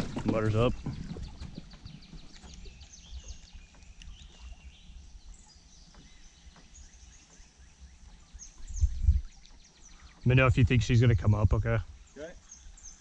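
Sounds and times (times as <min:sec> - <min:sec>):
birds chirping: 0:00.0 - 0:13.0
wind on microphone: 0:08.4 - 0:09.4.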